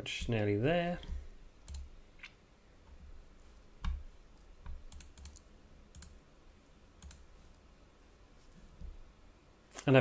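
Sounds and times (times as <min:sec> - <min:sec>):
computer mouse and keyboard clicks: 0:01.0 - 0:03.0, 0:04.6 - 0:06.2, 0:07.0 - 0:07.3.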